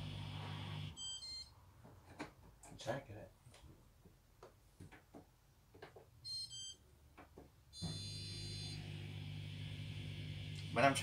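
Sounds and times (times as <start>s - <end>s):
steady low hum: 8.8s - 11.0s.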